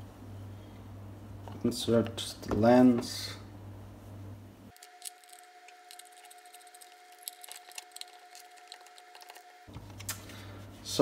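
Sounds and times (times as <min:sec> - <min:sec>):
plastic and glass parts clicking: 0:04.8 - 0:09.5.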